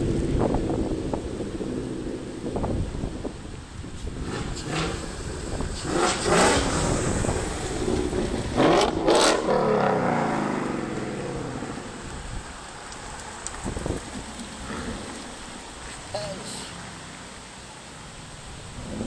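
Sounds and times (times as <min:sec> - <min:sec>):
tyre hiss on wet road: 0:03.5 - 0:19.0
cars driving past: 0:04.0 - 0:19.0.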